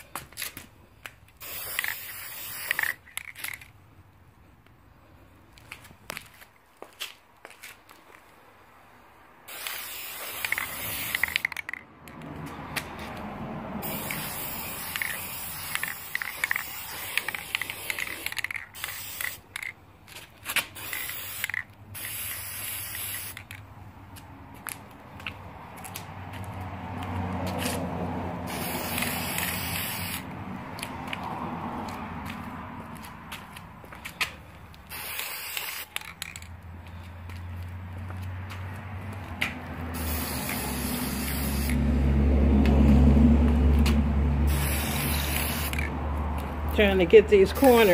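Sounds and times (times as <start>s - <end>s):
aerosol spray can hissing: 1.4s - 3.0s, 9.5s - 11.5s, 13.8s - 19.5s, 20.8s - 23.5s, 28.5s - 30.2s, 34.9s - 36.0s, 40.0s - 41.8s, 44.5s - 45.8s.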